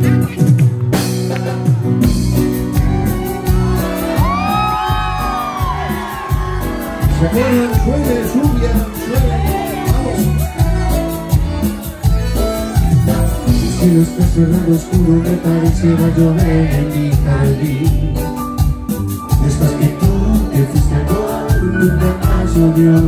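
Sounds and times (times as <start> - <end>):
live band playing cumbia: 0.0 - 23.0
crowd cheering and whooping: 2.0 - 12.2.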